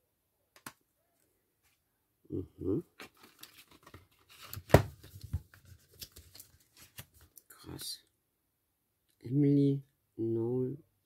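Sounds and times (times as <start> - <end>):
packaging rustling and crinkling: 3.0 - 7.3.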